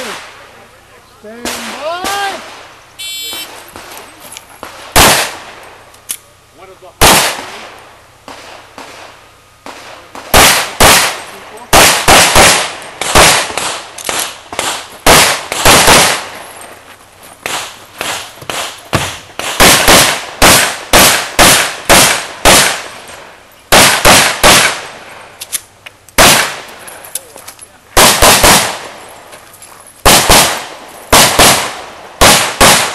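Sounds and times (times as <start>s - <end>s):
handgun shots with echo: 26.2s - 26.7s.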